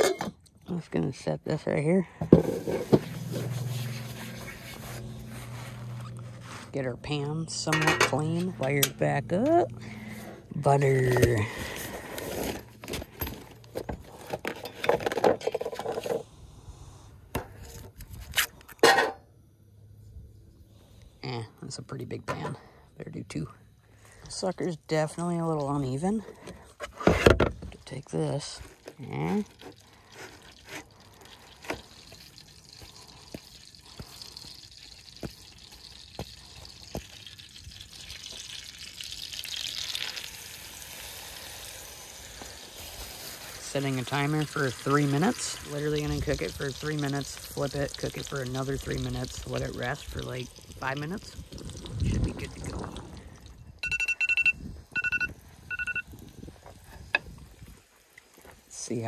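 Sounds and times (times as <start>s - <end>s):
cooler bag rustling: 2.3s - 16.2s
steak sizzling in a frying pan: 32.0s - 51.6s.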